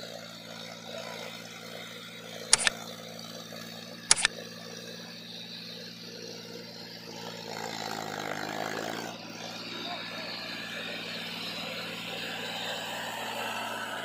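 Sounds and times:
sharp double clicks: 2.5 - 2.8, 4.1 - 4.3.

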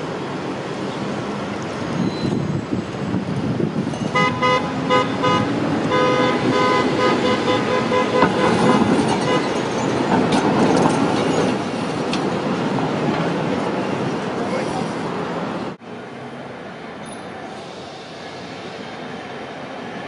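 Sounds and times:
tram rumbling on rails: 0.0 - 20.0
tram warning horn toots: 4.0 - 11.6.

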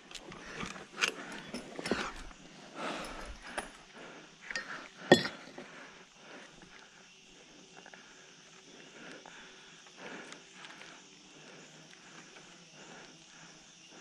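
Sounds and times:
sharp metallic clink: 4.5 - 5.6.

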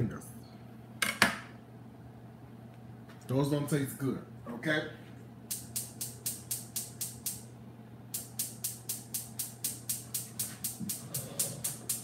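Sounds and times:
low steady hum: 0.0 - 12.0
gas igniter clicking: 5.5 - 7.5.

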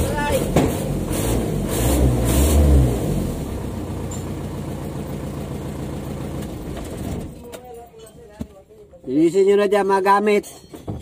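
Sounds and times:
diesel engine idling: 2.4 - 7.4.

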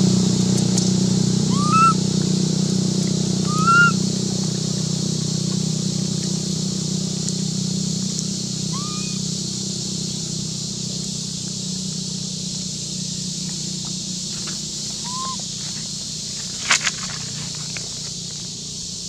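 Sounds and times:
short rising and falling chirps: 1.5 - 2.0, 3.4 - 4.0, 8.7 - 9.2.

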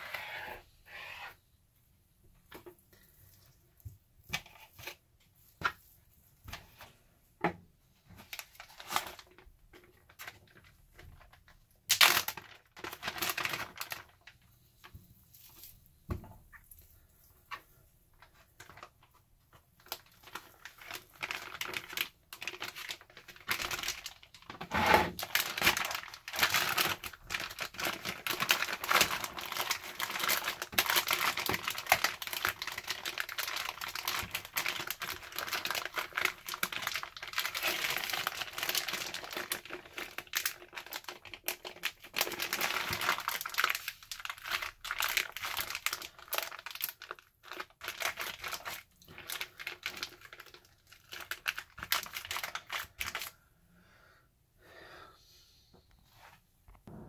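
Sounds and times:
plastic bag crinkling: 8.2 - 15.8, 19.8 - 53.3.

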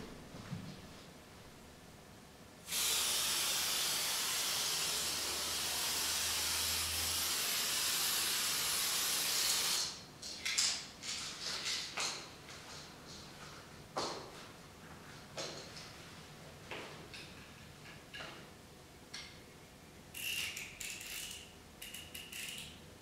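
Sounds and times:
aerosol spray can hissing: 2.7 - 10.0.

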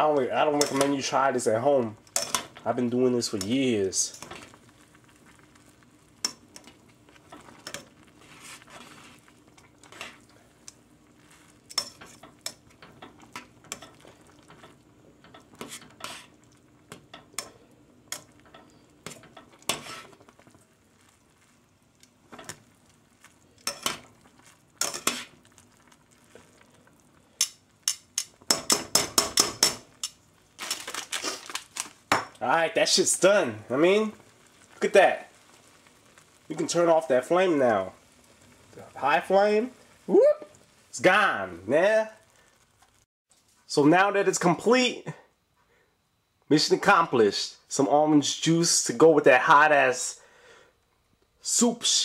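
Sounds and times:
metal tongs scraping a saucepan: 2.1 - 2.6, 11.7 - 16.4, 17.1 - 20.2, 24.8 - 25.3.

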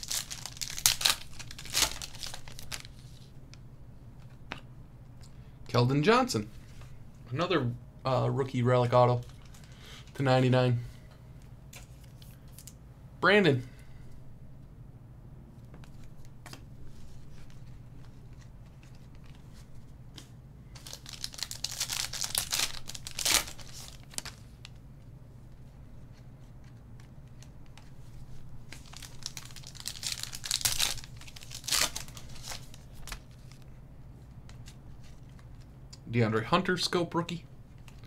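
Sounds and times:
foil wrappers crinkling and tearing: 0.0 - 3.2, 20.8 - 24.5, 28.7 - 33.6.

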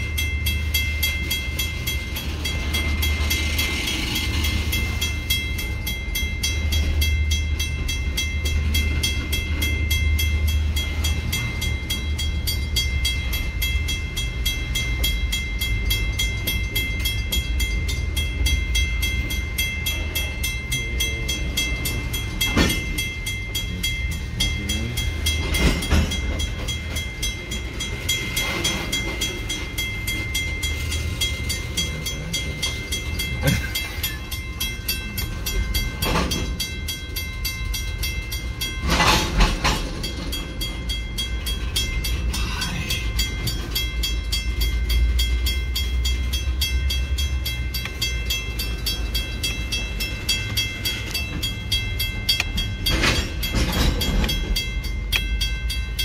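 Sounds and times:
short sharp clanks from train cars: 0.0 - 55.8
train wheels rumbling on rail: 0.0 - 56.0.

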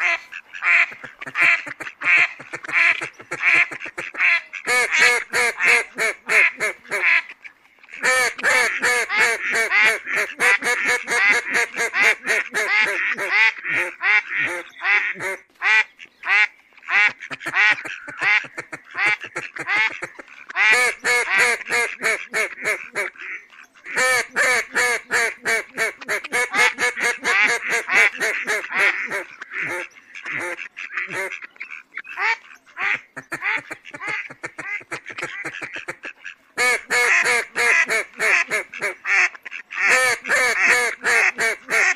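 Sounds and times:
ducks quacking: 0.0 - 41.9.

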